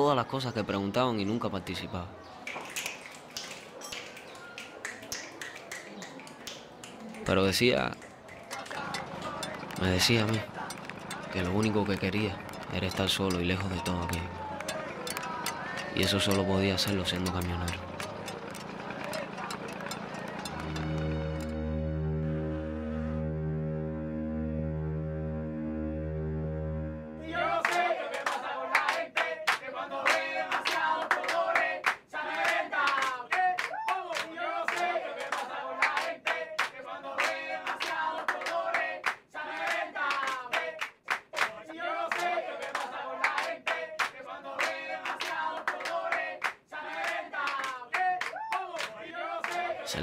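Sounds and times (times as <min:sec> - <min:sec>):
fast hand clapping: 0:02.5 - 0:21.5, 0:27.7 - 0:49.6
young voices singing together: 0:08.4 - 0:20.6, 0:27.2 - 0:40.8, 0:41.6 - 0:50.0.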